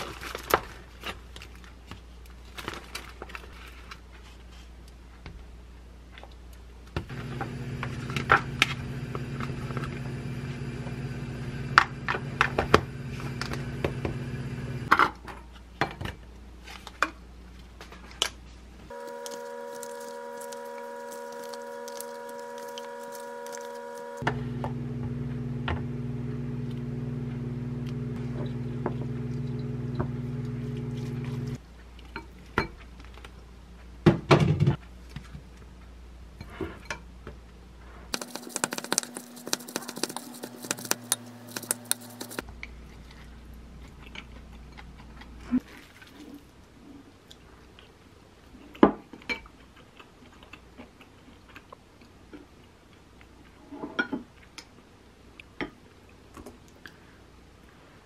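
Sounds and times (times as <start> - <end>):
low hum: 7.1 - 14.9, 18.9 - 31.6
wooden spoon scraping glass bowl: 19.0 - 24.2, 38.1 - 42.4.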